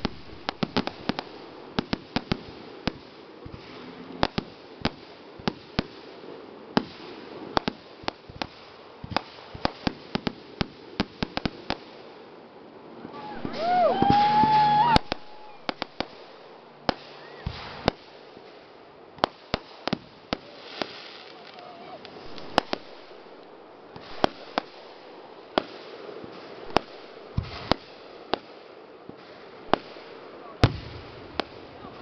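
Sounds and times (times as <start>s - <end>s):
background hiss: 0.0s - 32.0s
fireworks bursting: 0.0s - 32.0s.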